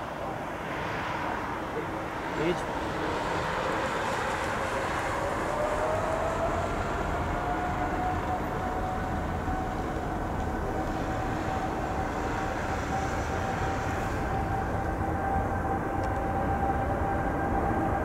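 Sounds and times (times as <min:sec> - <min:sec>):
jet engine whine: 0:00.0 - 0:18.0
jet engines rumbling: 0:00.0 - 0:18.0.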